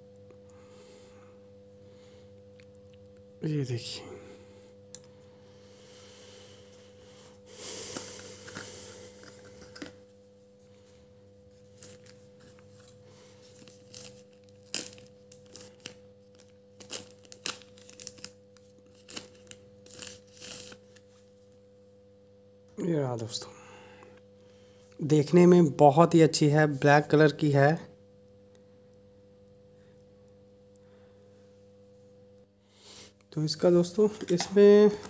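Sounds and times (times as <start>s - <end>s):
faint steady hum: 0.0s - 35.0s
plastic pouch crinkling: 11.8s - 20.8s.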